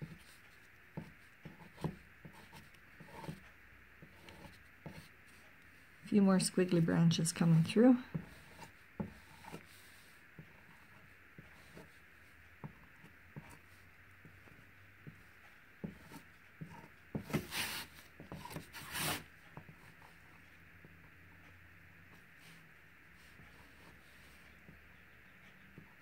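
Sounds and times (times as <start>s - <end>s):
marker scratching on paper: 1.0s - 3.4s, 4.0s - 5.4s, 8.1s - 10.0s.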